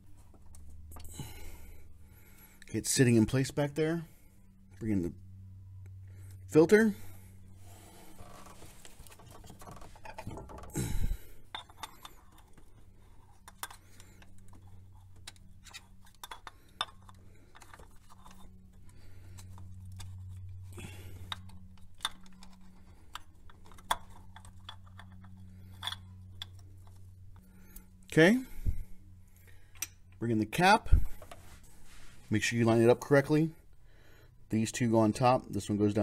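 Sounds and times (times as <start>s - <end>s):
steady low hum: 0.0s - 36.0s
light clicks of parts handled: 11.4s - 28.1s.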